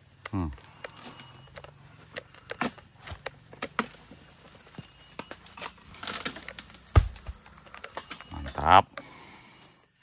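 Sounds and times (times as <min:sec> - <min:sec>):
leaves rustling: 0:00.6 - 0:09.6
blade knocking palm stalk: 0:05.2 - 0:08.2.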